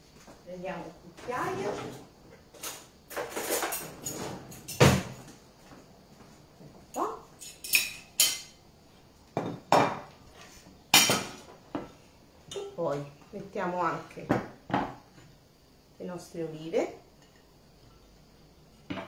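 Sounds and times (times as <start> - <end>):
dishes and utensils clinking: 7.4 - 8.6.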